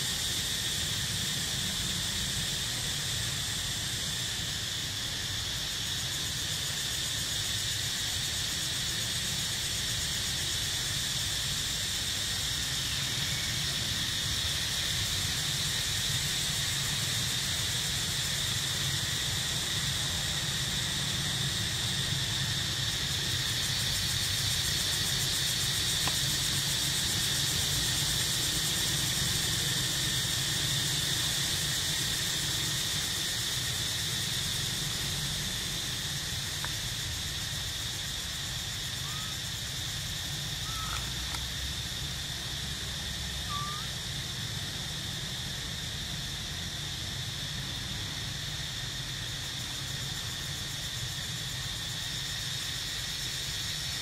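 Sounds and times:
insect drone: 0:00.0 - 0:54.0
faint bird chirps: 0:39.0 - 0:39.4, 0:40.6 - 0:41.2, 0:43.4 - 0:43.9.

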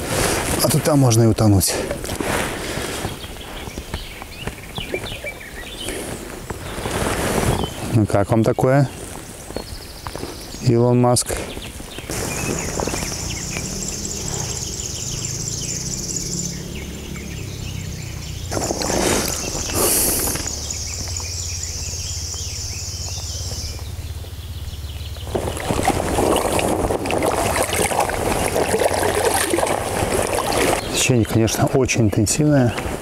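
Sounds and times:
river water rushing and splashing: 0:12.1 - 0:20.9, 0:25.3 - 0:31.4
high pulsing buzz: 0:12.1 - 0:27.0.

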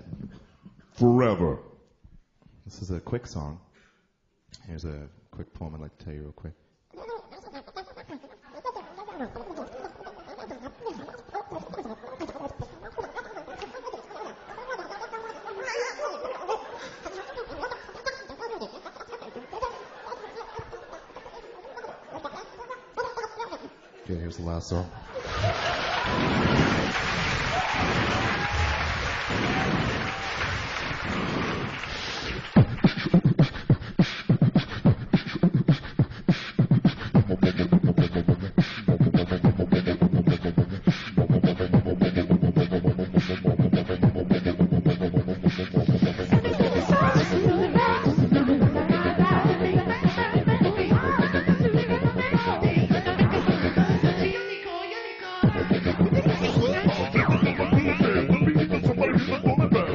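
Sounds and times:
man vocalising into microphone: 0:32.6 - 0:54.4, 0:55.4 - 0:59.9
hummed bass: 0:36.6 - 0:54.3, 0:55.4 - 0:59.9.

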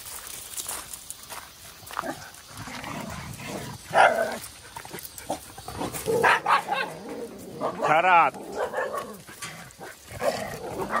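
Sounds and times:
dogs barking: 0:03.8 - 0:11.0.

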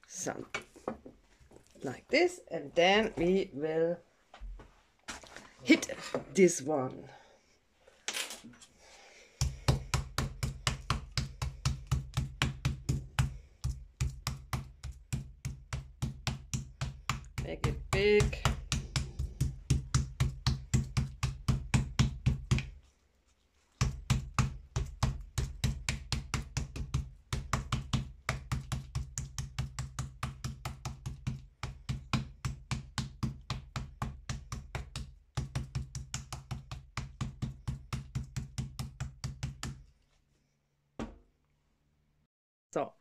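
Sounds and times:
wooden mallet pounding meat: 0:09.4 - 0:22.8, 0:23.8 - 0:39.8.

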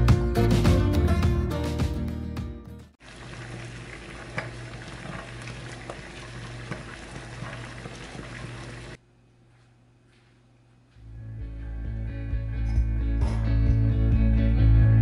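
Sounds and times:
water boiling in a pan: 0:03.0 - 0:09.0.

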